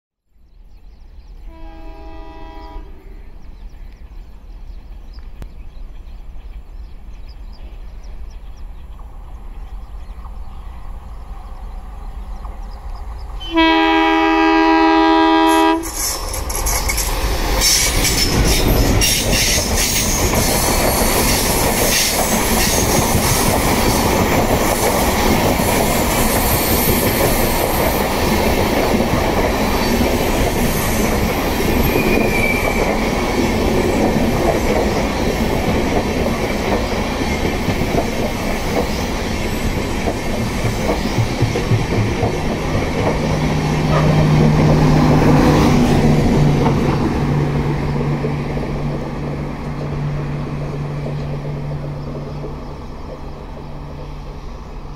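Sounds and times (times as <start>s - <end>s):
train horn: 1.4s - 3.4s, 13.4s - 16.0s
train wheels clattering on rails: 15.6s - 54.9s.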